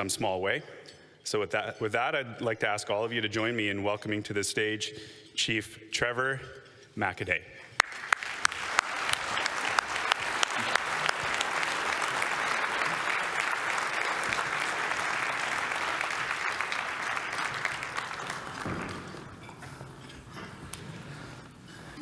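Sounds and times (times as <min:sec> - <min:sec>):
close sharp claps: 0:07.8 - 0:19.4
audience applauding: 0:07.8 - 0:19.5.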